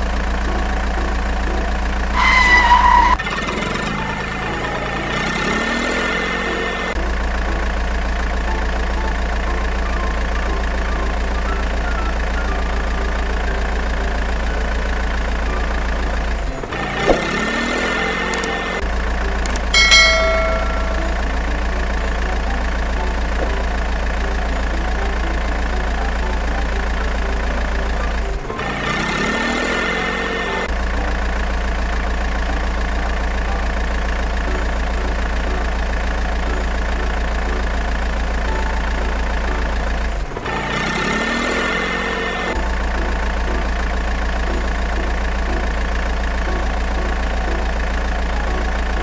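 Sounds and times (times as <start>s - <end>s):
engine idling: 0.0s - 49.0s
click: 18.3s - 18.6s, 19.4s - 19.7s.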